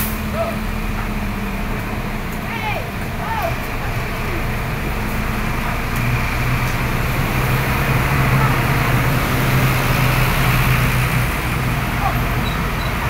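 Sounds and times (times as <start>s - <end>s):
diesel bus engine droning: 0.0s - 13.0s
wet tyres on road: 0.0s - 13.0s.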